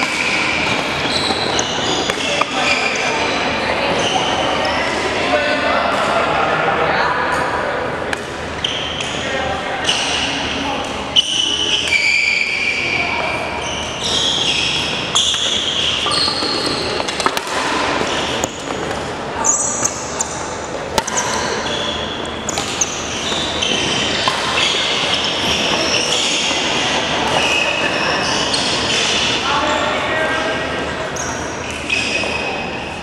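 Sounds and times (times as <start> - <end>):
shoes squeaking on hardwood floor: 0.0 - 5.1, 11.2 - 30.0
voices in background: 0.0 - 33.0.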